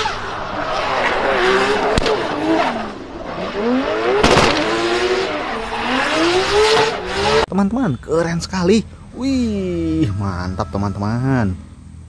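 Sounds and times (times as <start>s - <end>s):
racing car engine revving: 0.0s - 7.5s.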